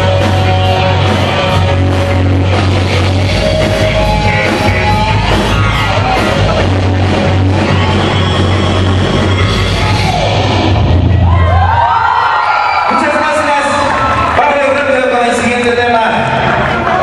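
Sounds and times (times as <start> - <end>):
live rock band playing: 0.0 - 11.8
heavy bass: 0.0 - 12.3.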